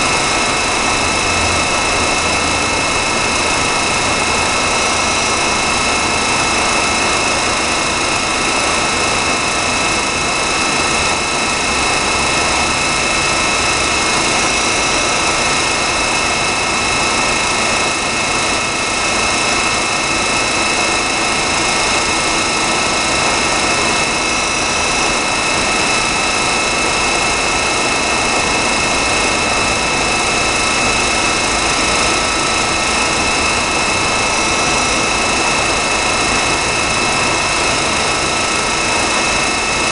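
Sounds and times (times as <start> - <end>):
high-pitched whines: 0.0 - 39.9
milling machine hum: 0.0 - 39.9.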